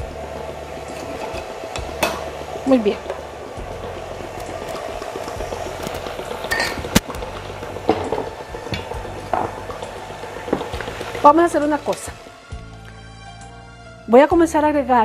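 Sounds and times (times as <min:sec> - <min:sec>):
stand mixer running: 0:00.0 - 0:12.6
utensils and glassware clicking: 0:05.9 - 0:07.0.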